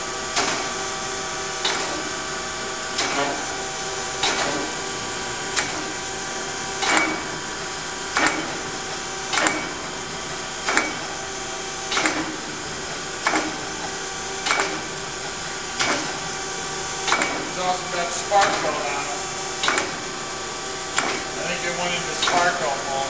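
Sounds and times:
grinding machine hum: 0.0s - 23.0s
sharp machine knock: 0.3s - 0.8s, 1.6s - 2.1s, 2.9s - 7.4s, 8.1s - 15.0s, 15.7s - 16.4s, 17.0s - 20.2s, 20.9s - 23.0s.

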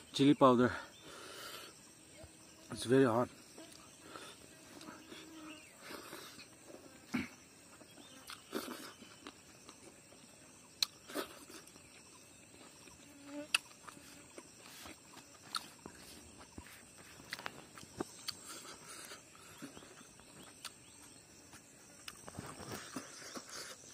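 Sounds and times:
high insect drone: 0.0s - 23.9s
chewing clicks and smacks: 8.2s - 9.9s, 10.8s - 12.0s, 13.5s - 16.0s, 17.2s - 20.9s.

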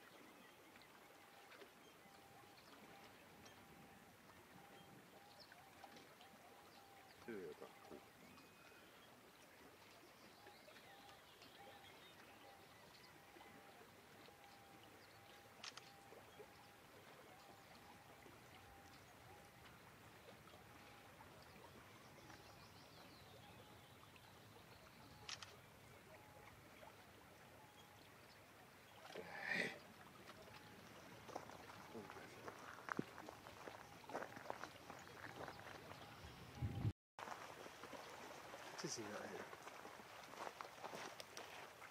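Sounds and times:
faint seaside ambience: 0.0s - 41.9s
small clicks: 15.6s - 16.0s.

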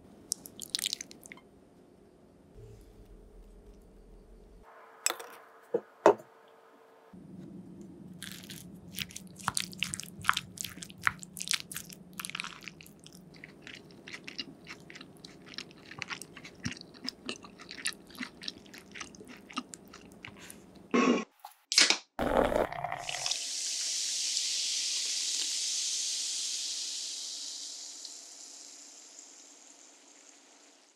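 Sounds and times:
wet squishes of mixing food: 0.3s - 1.4s, 8.2s - 20.6s.

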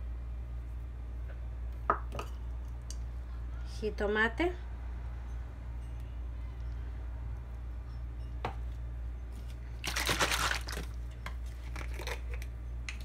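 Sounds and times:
crinkling rustle: 9.4s - 12.4s.

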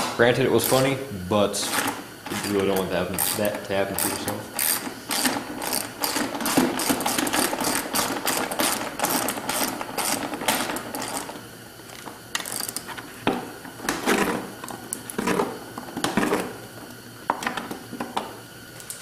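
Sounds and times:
tools knocking and rattling: 1.7s - 11.4s.

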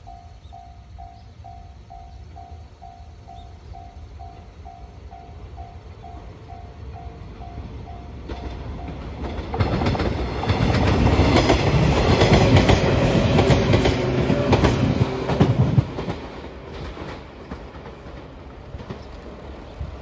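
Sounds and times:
level-crossing warning bell: 0.0s - 9.5s
train wheels rumbling on rails: 0.0s - 20.0s
clickety-clack of rail joints: 5.6s - 20.0s.

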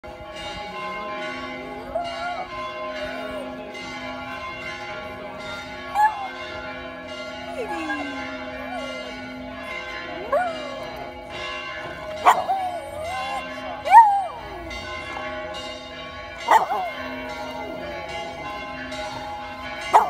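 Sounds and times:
church bells ringing: 0.0s - 20.0s
dog howling: 1.8s - 3.6s, 5.9s - 6.5s, 7.4s - 9.3s, 10.1s - 11.2s, 11.9s - 15.0s, 16.5s - 18.0s.

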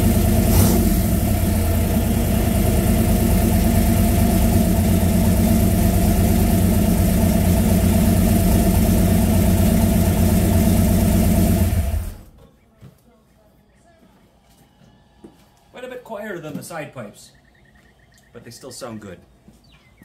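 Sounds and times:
car engine idling: 0.0s - 12.4s.

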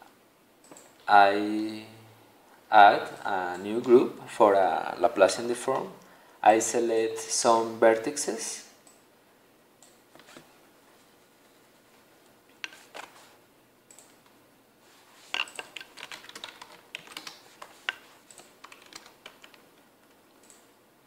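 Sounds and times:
faint room hiss: 0.0s - 21.0s
keyboard typing: 15.3s - 20.7s.

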